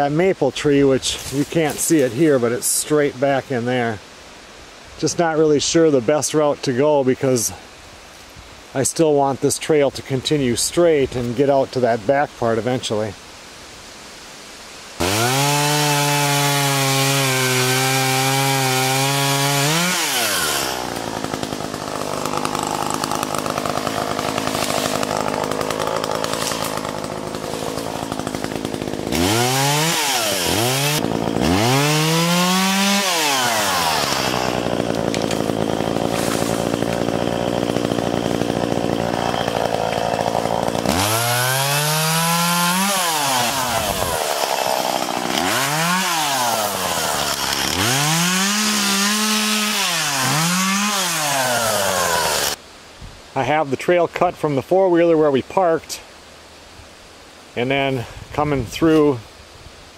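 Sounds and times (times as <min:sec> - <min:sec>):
chainsaw cutting brush: 0:01.0 - 0:03.4, 0:15.0 - 0:52.6.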